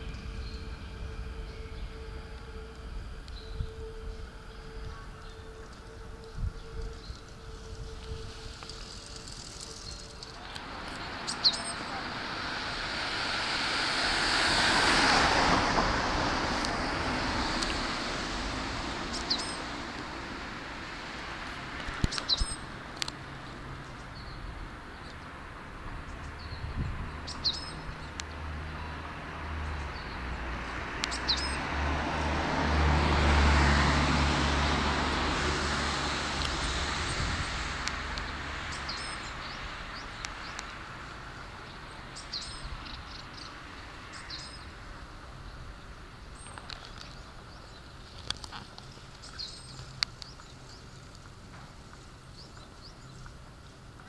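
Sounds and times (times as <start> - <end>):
low hum: 0.0 - 21.6
electric train rumbling past: 0.0 - 46.4
small birds chirping: 8.7 - 12.0, 22.0 - 22.6, 26.1 - 28.9, 31.0 - 31.6, 38.2 - 44.8, 45.4 - 54.0.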